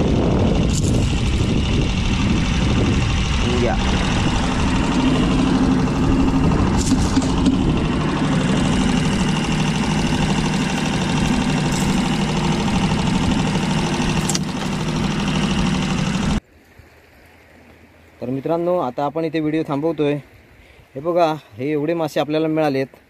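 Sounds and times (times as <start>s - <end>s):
boat motor running: 0.0s - 16.4s.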